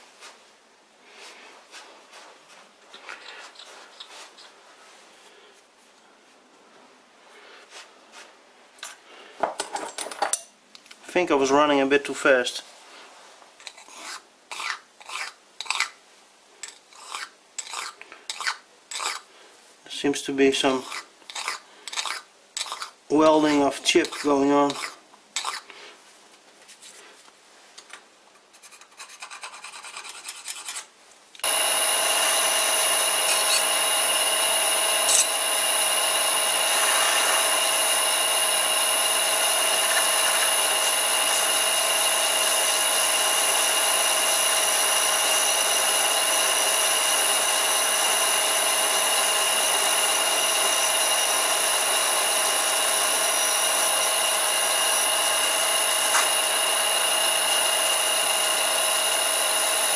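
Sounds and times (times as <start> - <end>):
lathe motor whine: 31.4 - 59.9
lathe tool scraping cut: 31.4 - 59.9.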